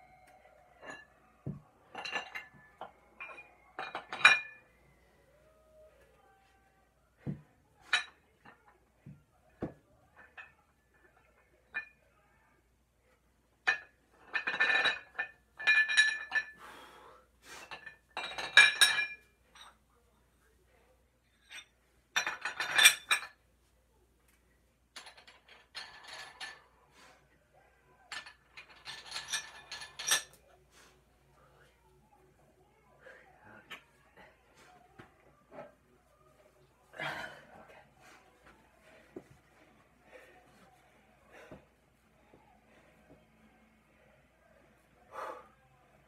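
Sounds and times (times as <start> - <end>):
metal clinking and rattling: 24.9 - 26.7, 28.1 - 30.4.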